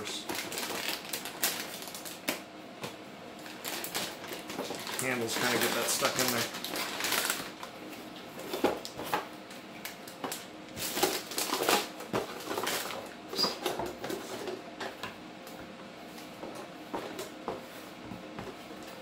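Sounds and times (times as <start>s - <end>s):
plastic bag crinkling: 0.2s - 2.3s, 3.4s - 7.6s, 10.0s - 13.7s.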